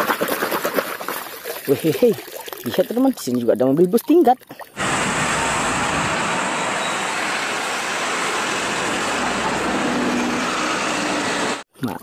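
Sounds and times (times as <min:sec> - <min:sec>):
bus engines: 0:04.8 - 0:11.7
street traffic: 0:04.8 - 0:11.7.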